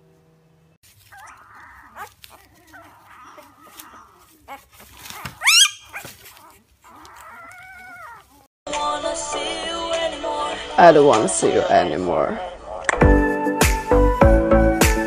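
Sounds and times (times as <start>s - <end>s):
puppy whining: 0.9s - 8.5s
puppy yelping: 0.9s - 8.5s.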